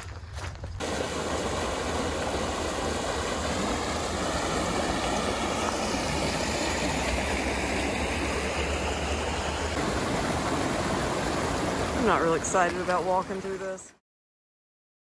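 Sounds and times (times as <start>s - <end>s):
floodwater rushing: 0.8s - 13.9s.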